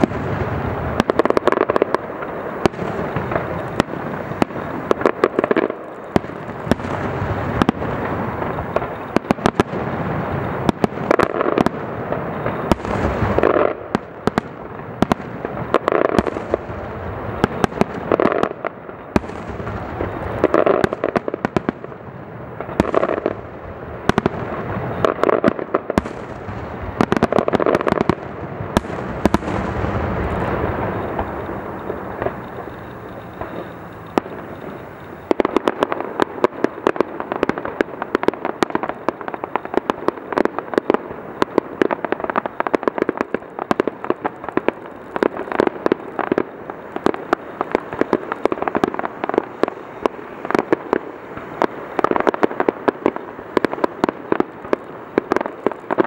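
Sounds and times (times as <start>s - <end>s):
fireworks crackling: 0.0s - 56.0s
firework shell bursts: 28.8s - 36.2s.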